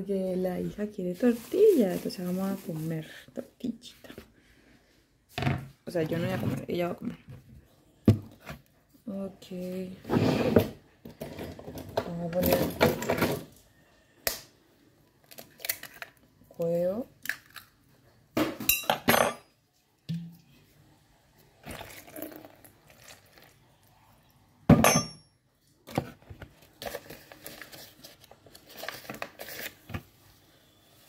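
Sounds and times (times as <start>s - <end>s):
paper bag rustling: 1.1s - 3.1s
bowl and utensils clinking: 24.7s - 25.3s.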